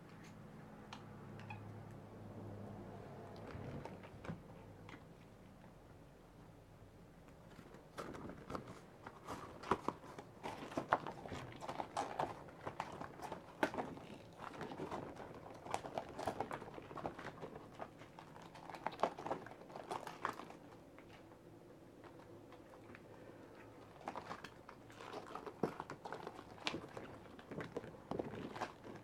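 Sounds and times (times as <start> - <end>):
latex gloves crinkling and snapping: 7.2 - 29.0.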